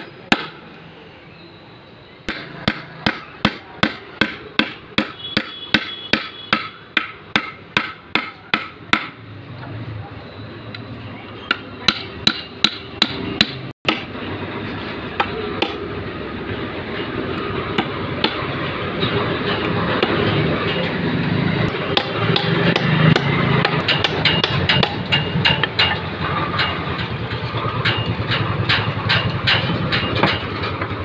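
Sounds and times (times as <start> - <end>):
hammer striking nails into wood: 0.0 - 0.6, 2.3 - 9.2, 21.8 - 26.0.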